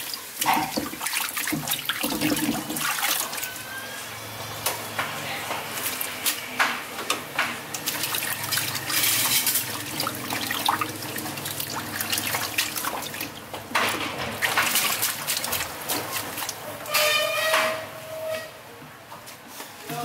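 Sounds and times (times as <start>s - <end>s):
water splashing in a sink: 0.0s - 3.8s, 7.6s - 17.3s
colander dripping: 0.0s - 5.1s, 7.4s - 17.7s.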